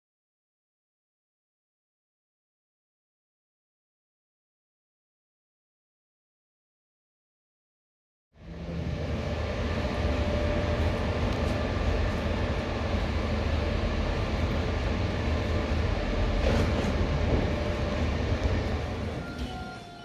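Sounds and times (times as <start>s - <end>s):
faint whine: 8.4s - 20.0s
train low rumble: 8.4s - 20.0s.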